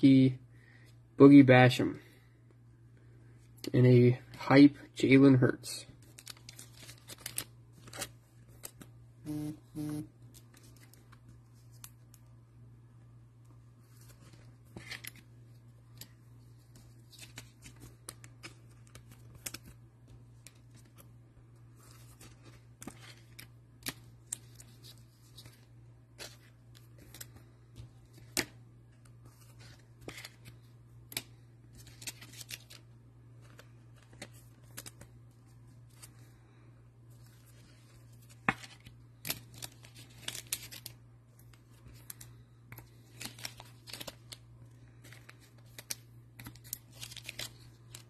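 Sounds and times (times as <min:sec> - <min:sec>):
card packaging clicks and rustles: 0:06.0 - 0:09.0, 0:10.2 - 0:12.3, 0:13.8 - 0:36.3, 0:37.2 - 0:48.0
steady low hum: 0:07.4 - 0:31.8.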